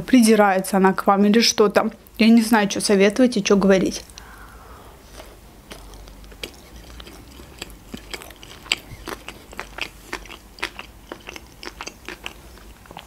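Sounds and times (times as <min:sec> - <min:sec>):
person chewing food: 0:05.0 - 0:13.0.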